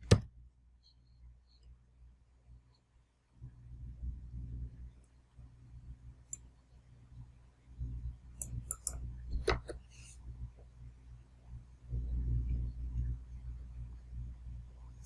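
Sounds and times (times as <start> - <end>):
low steady hum: 0.0 - 15.0
mouse and keyboard clicks: 8.4 - 9.8.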